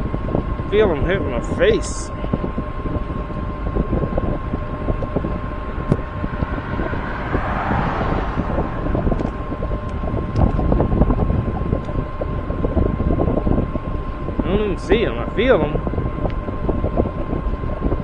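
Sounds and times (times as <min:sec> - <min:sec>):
road and tyre rumble: 0:00.0 - 0:18.0
wind buffeting microphone: 0:00.0 - 0:18.0
broad swell of noise: 0:06.0 - 0:10.3.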